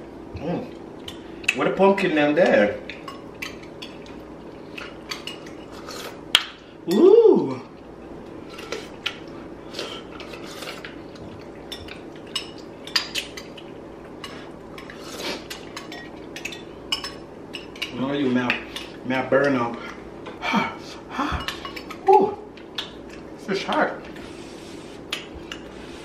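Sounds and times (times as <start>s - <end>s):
person humming: 6.9s - 7.7s, 20.4s - 22.4s
spoons clinking against glass bowls: 15.5s - 19.0s.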